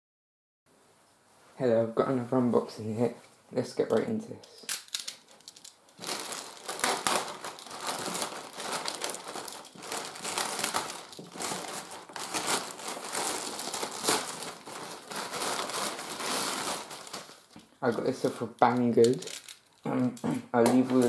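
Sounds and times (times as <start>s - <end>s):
plastic mailer bag crinkling: 4.7s - 19.9s, 20.7s - 21.0s.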